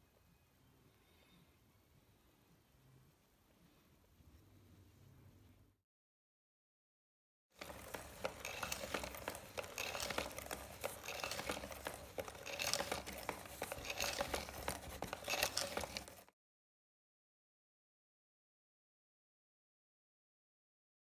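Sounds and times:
cardboard parts scraping and clicking: 0:07.6 - 0:16.3.

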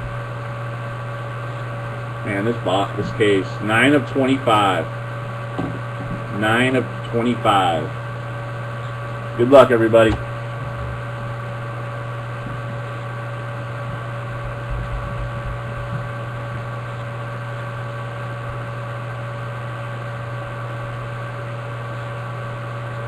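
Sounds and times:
electrical hum and hiss: 0:00.0 - 0:23.0
faint whine tones: 0:00.0 - 0:23.0.

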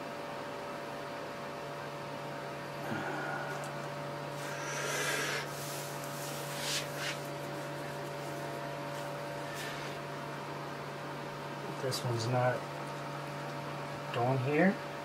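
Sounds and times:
electrical hum: 0:00.0 - 0:15.0
hands rustling and scraping: 0:05.5 - 0:10.0.

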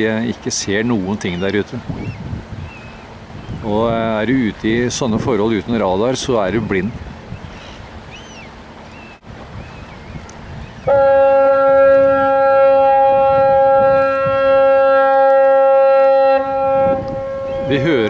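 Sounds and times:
wind: 0:00.0 - 0:18.0
ferry horn blast: 0:10.9 - 0:18.0.

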